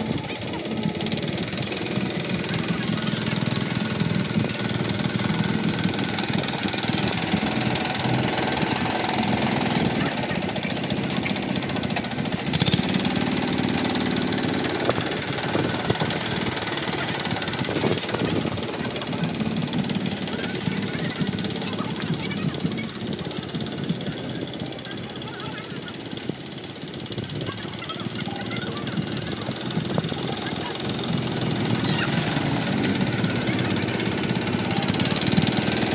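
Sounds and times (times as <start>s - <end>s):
diesel engine knocking: 0.0s - 35.9s.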